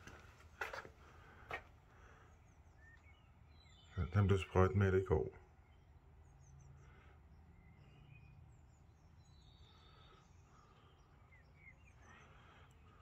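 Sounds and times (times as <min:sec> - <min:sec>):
distant bird chirps: 0:00.0 - 0:13.0.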